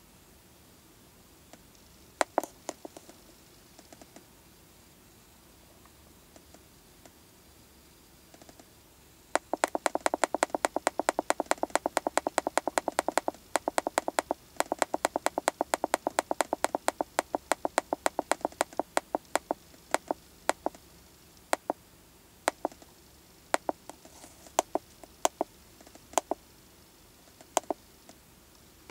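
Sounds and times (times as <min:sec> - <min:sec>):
handheld device button clicks: 0:09.4 - 0:20.8, 0:21.5 - 0:21.8, 0:22.5 - 0:22.8, 0:24.6 - 0:25.5, 0:26.2 - 0:26.4, 0:27.6 - 0:27.8.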